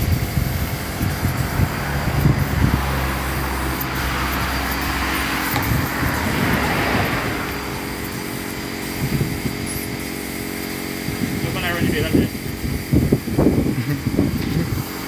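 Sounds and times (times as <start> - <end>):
spray gun hissing: 0.0 - 15.0
steady low hum: 0.0 - 15.0.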